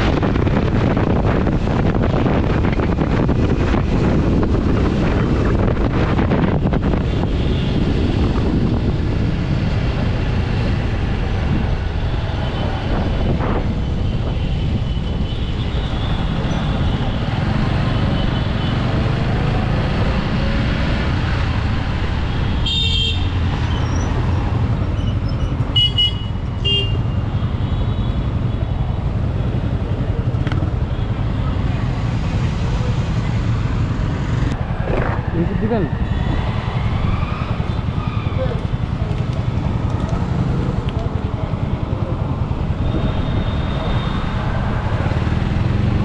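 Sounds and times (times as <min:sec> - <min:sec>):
wind noise: 0:00.0 - 0:25.8, 0:28.8 - 0:46.0
vehicle horns honking: 0:22.5 - 0:23.4, 0:25.7 - 0:28.3
motorcycle engine rumble: 0:26.8 - 0:46.0.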